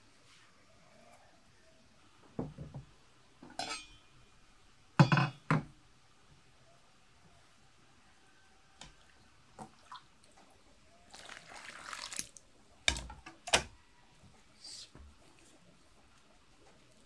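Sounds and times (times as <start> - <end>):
dull knock on wooden table: 2.4 - 2.9.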